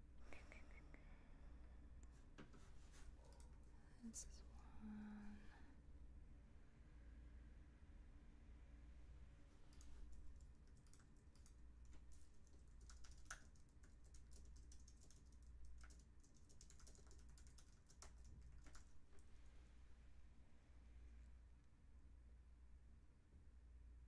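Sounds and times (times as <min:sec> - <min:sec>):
faint keyboard typing: 0:02.0 - 0:03.7, 0:09.6 - 0:19.5.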